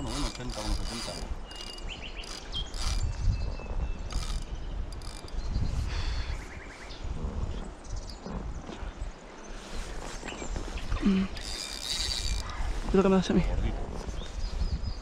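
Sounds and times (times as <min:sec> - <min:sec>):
fishing reel clicking: 0:00.0 - 0:03.2, 0:04.1 - 0:05.4, 0:11.4 - 0:12.8.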